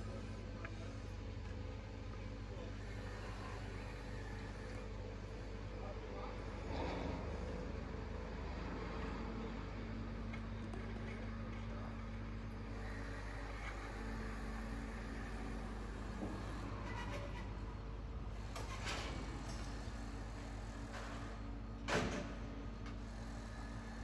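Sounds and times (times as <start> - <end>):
machinery and traffic drone: 0.0 - 24.0.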